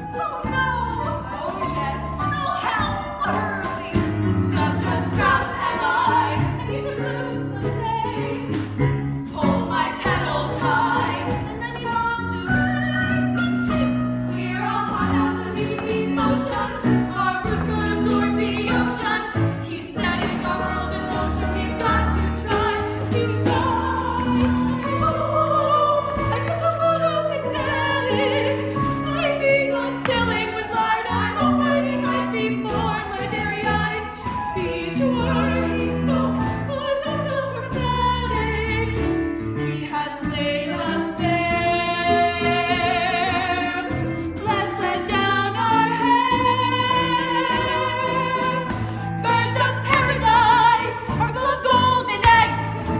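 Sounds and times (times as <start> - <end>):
instrumental accompaniment: 0.0 - 52.9
women singing together: 0.0 - 52.9.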